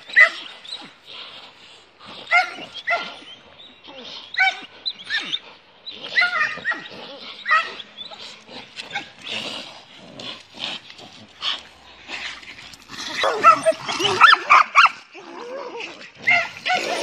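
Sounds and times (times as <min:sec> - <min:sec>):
dogs snarling: 0:00.0 - 0:17.0
dogs yelping: 0:02.2 - 0:09.3, 0:11.5 - 0:15.6, 0:16.2 - 0:17.0.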